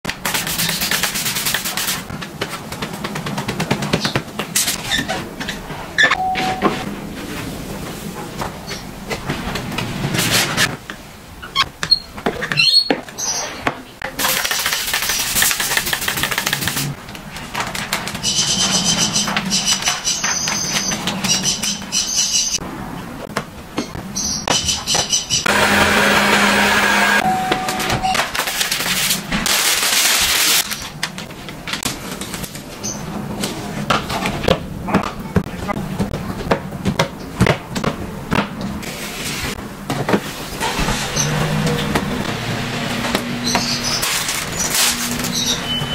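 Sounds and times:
high ringing tones: 6.1s - 6.9s, 27.2s - 28.2s
squeegee scraping glass: 43.4s - 45.9s.

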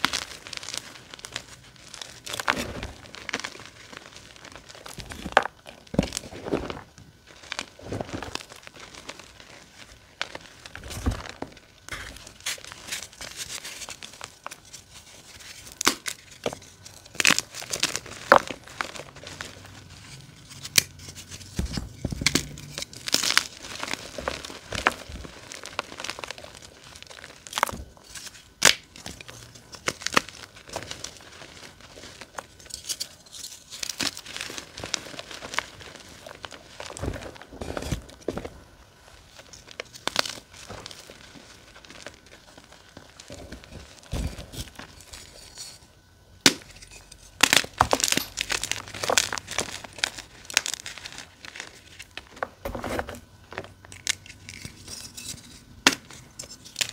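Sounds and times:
chalk crumbling by hand: 0.0s - 38.6s, 39.2s - 56.9s
chalk pieces snapping: 27.4s - 29.2s.

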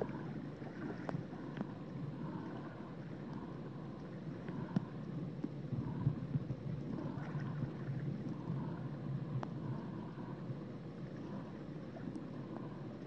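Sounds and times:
underwater water wash: 0.0s - 13.0s
faint clicks: 1.0s - 1.9s, 3.2s - 5.6s, 9.3s - 9.6s.

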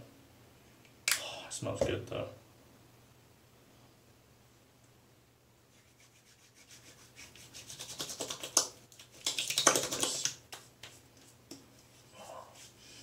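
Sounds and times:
hands rubbing together: 5.7s - 12.0s.

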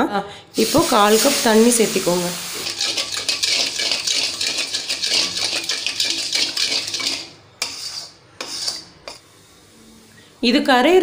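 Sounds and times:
spatula scraping sugar on metal: 0.7s - 9.2s.

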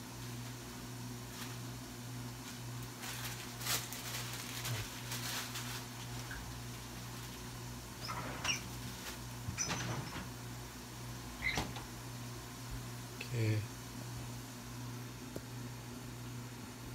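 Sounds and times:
short high squeaks: 8.0s - 8.7s, 9.5s - 10.2s, 11.4s - 11.8s.

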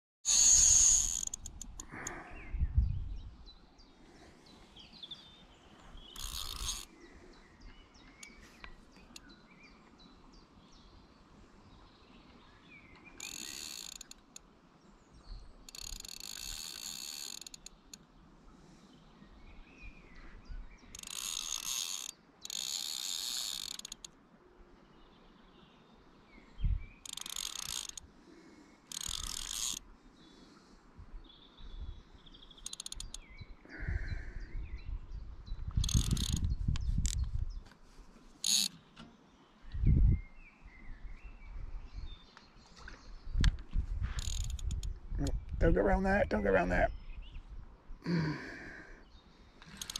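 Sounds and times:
fishing reel ratcheting: 0.3s - 2.1s, 6.2s - 6.9s, 13.2s - 14.4s, 15.7s - 18.0s, 20.9s - 24.1s, 27.0s - 28.0s, 28.9s - 29.8s, 32.6s - 33.2s, 35.8s - 36.4s, 38.4s - 38.8s, 44.2s - 44.9s, 49.6s - 49.9s
faint birdsong: 0.3s - 49.9s.

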